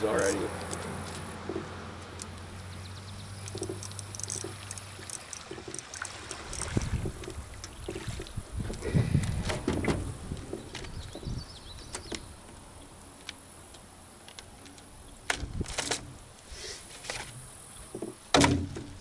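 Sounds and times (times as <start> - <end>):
fishing rod and reel clicks: 0.5 - 2.5, 3.3 - 7.8, 13.0 - 16.2.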